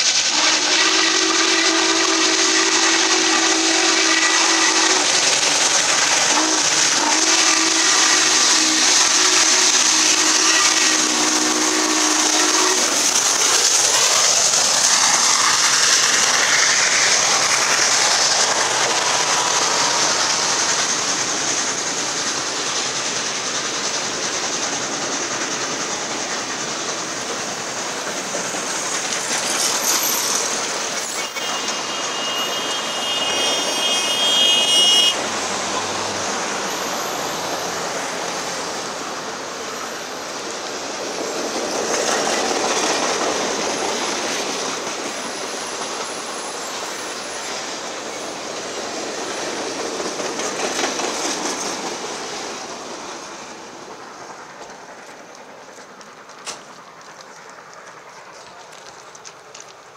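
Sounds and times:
train wheels rumbling on rail: 0.0 - 59.9
high squeal: 29.3 - 38.9.

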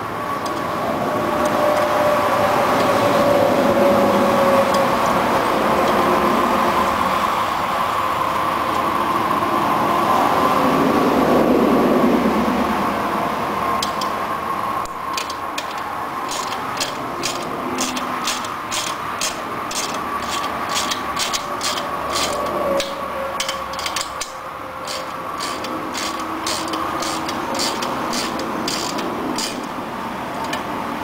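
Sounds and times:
ratcheting wrench clicking: 15.1 - 29.8.

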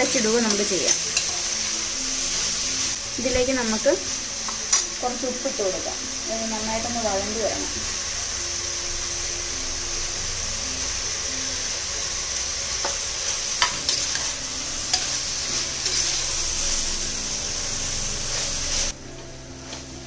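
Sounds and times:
onions sizzling in hot oil: 0.0 - 20.0
spoon clinking and scraping pot: 13.6 - 15.2, 15.8 - 16.2.

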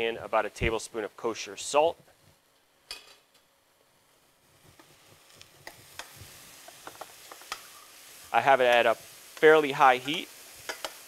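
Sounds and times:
eggplant sizzling in oil: 4.0 - 11.0.

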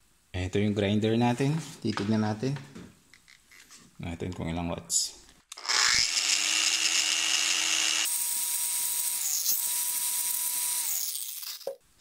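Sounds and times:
angle grinder whining: 5.5 - 11.8.

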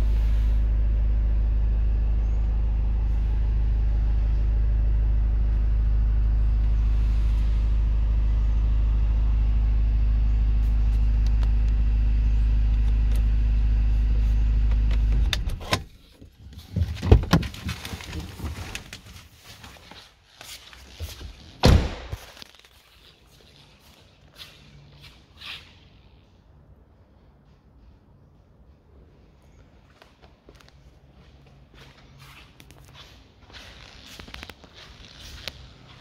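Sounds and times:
diesel engine idling: 0.0 - 15.3.

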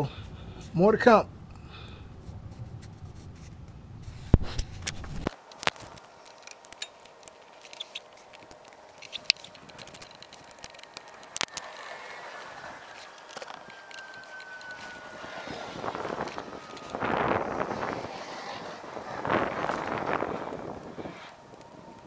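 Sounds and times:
low rumble: 0.0 - 5.3
hands handling car parts: 4.3 - 17.1.

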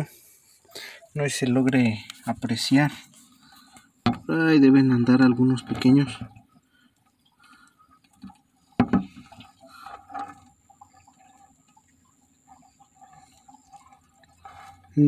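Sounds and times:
water sloshing in a bucket: 0.0 - 15.0
water dripping: 0.6 - 15.0
bucket bump: 4.0 - 4.4, 8.2 - 10.5.

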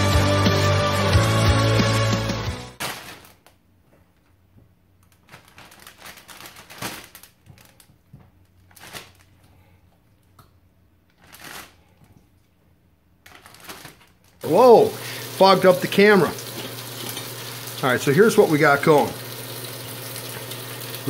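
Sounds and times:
intro music: 0.0 - 2.8
plastic bag crinkling and rustling: 2.8 - 3.6, 5.0 - 9.8, 11.1 - 12.5, 13.2 - 14.9.

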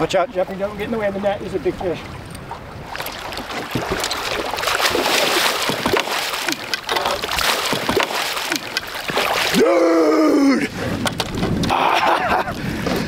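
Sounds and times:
fish splashing in water: 2.8 - 9.6.

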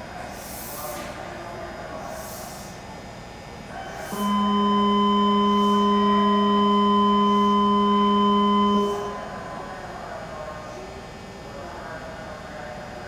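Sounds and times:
electronic departure signal tone: 4.1 - 9.7
low platform hum: 4.1 - 12.8.

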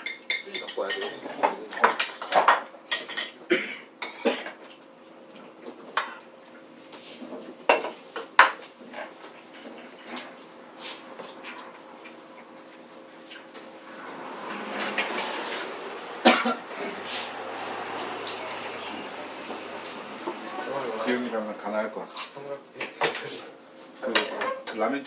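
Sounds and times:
cutlery clinking on plates: 0.0 - 3.4.

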